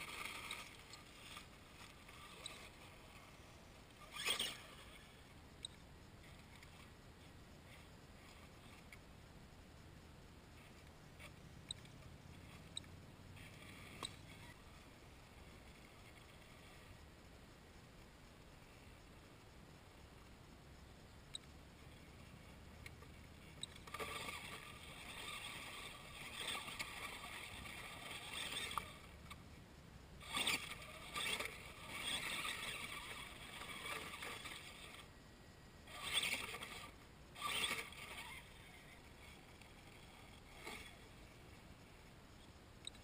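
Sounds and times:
electric motor and gears whining: 0:30.2 - 0:35.1, 0:35.8 - 0:41.1.

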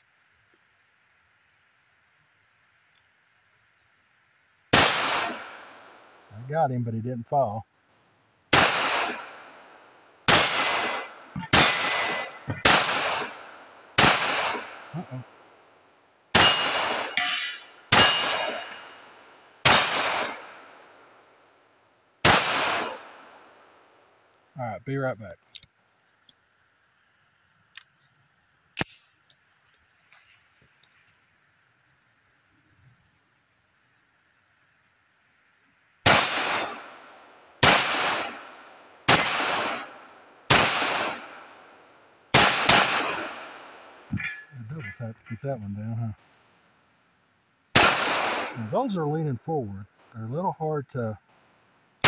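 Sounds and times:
pistol shots: 0:04.7 - 0:06.0, 0:08.5 - 0:15.0, 0:16.3 - 0:20.8, 0:22.2 - 0:23.5, 0:36.0 - 0:41.6, 0:42.3 - 0:44.4, 0:47.7 - 0:48.8
steel targets clanging: 0:10.3 - 0:13.4, 0:16.4 - 0:19.0, 0:36.1 - 0:37.0, 0:39.1 - 0:39.9, 0:44.1 - 0:45.4.

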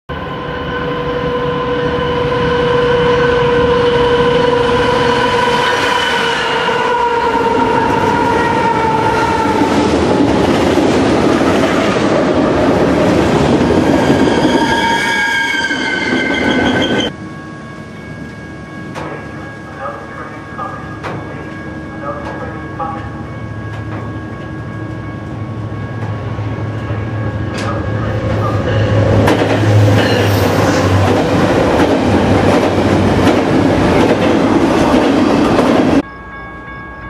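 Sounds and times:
train horn: 0:00.1 - 0:09.9, 0:14.0 - 0:17.2
high wheel squeal: 0:13.9 - 0:17.2, 0:29.8 - 0:31.0.

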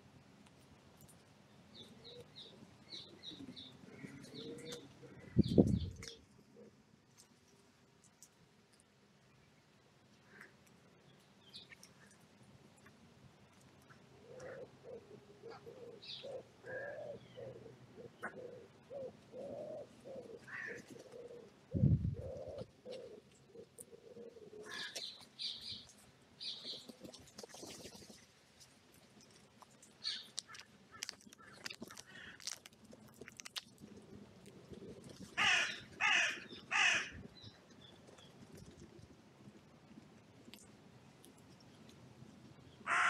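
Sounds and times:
small birds chirping: 0:01.4 - 0:06.7, 0:09.2 - 0:28.2, 0:29.7 - 0:32.6
pigeon cooing: 0:01.8 - 0:06.8, 0:13.9 - 0:25.1
crow cawing: 0:20.5 - 0:20.8, 0:35.4 - 0:37.2.

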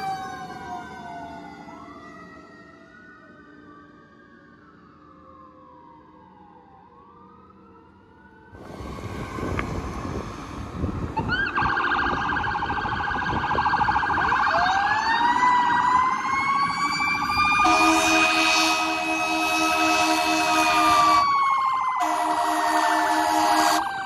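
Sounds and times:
passing traffic: 0:00.0 - 0:24.0
siren rising wail: 0:00.0 - 0:24.0
fast-pulsing electronic siren: 0:07.8 - 0:24.0
low horn blasts: 0:17.6 - 0:21.3, 0:22.0 - 0:23.8.

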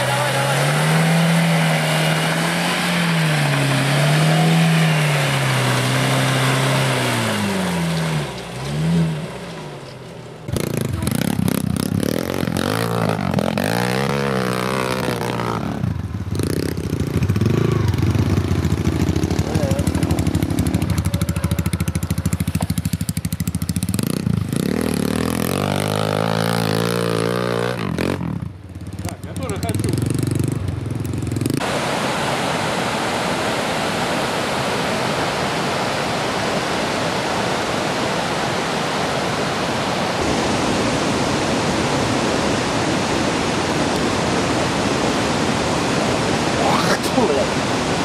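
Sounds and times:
off-road vehicle engine revving: 0:00.0 - 0:32.0
motorcycle engines revving: 0:00.0 - 0:33.4
tyres pushing through mud: 0:00.0 - 0:48.0.

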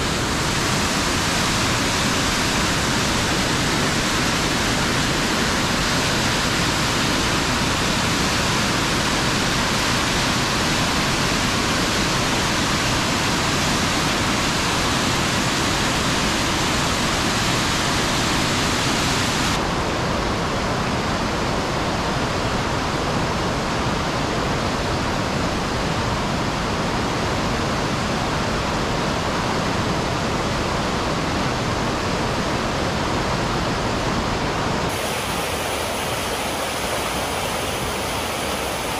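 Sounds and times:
waterfall rushing: 0:00.0 - 0:20.0, 0:33.1 - 0:38.9.

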